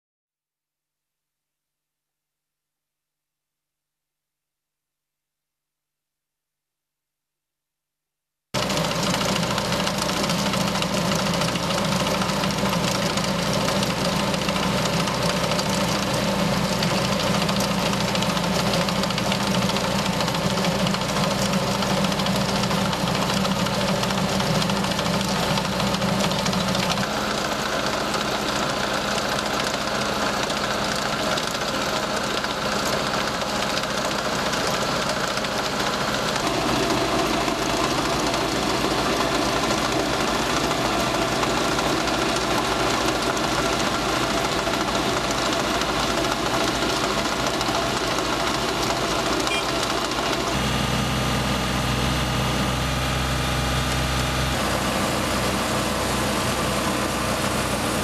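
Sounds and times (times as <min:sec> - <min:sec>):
trencher chain churning soil: 0:08.6 - 0:50.6
tractor engine running: 0:08.6 - 0:58.0.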